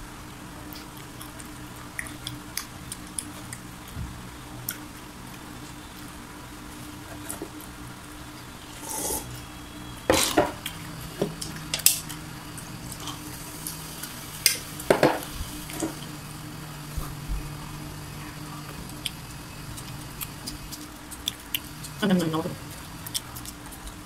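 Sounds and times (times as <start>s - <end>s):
chewing crispy chicken skin: 0.6s - 6.2s, 17.0s - 24.0s.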